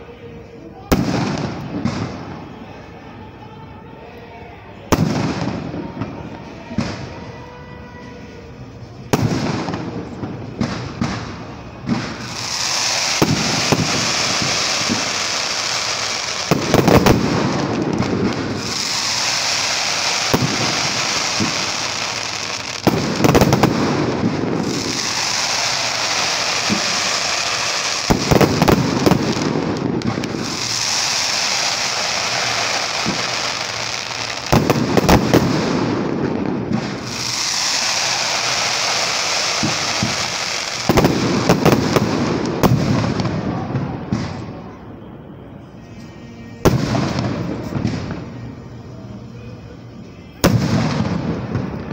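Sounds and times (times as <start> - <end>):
crackling hiss of firework stars: 4.1 - 44.8.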